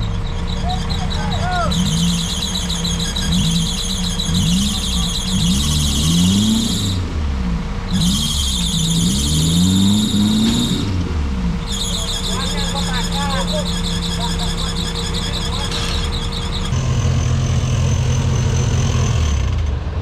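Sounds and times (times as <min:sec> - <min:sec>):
toy car motor whining: 0:11.7 - 0:16.8.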